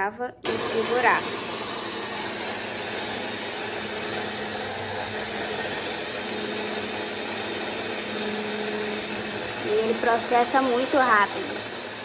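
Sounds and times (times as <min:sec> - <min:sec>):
stick blender motor whirring: 0:00.4 - 0:12.0.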